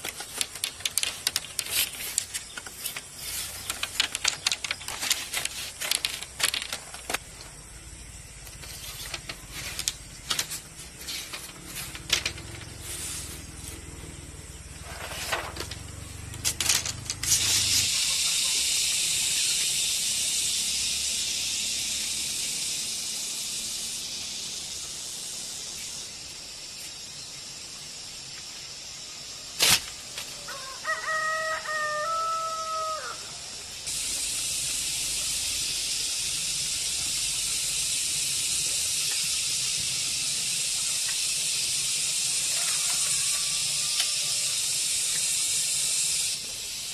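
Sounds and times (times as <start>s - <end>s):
bamboo strips clacking on concrete: 0.0s - 7.6s, 8.4s - 13.9s, 14.8s - 18.7s, 37.9s - 46.4s
steady high hiss: 0.0s - 46.9s
rooster crowing: 30.4s - 33.4s, 42.5s - 44.6s.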